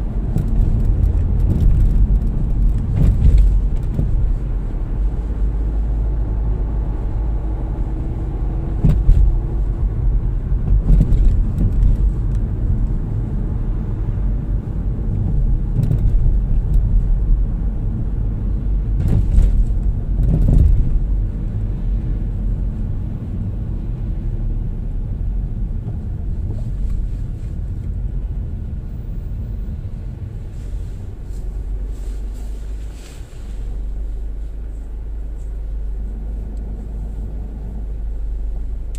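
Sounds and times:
car engine and tyre rumble: 0:00.0 - 0:38.9
knocks from road bumps: 0:08.8 - 0:09.4, 0:10.6 - 0:12.1, 0:18.9 - 0:21.1.

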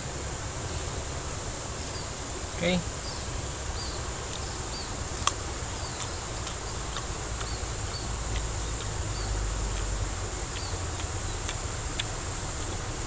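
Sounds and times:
insect buzzing: 0:00.0 - 0:13.0
insect chirps: 0:00.0 - 0:13.0
crunch of cactus stem bitten: 0:05.2 - 0:08.0.

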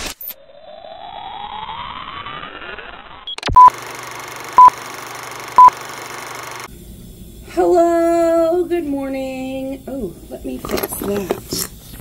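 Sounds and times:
rising electronic sweep: 0:00.4 - 0:03.6
electronic beeps: 0:03.2 - 0:03.8, 0:04.6 - 0:04.8, 0:05.6 - 0:05.8.

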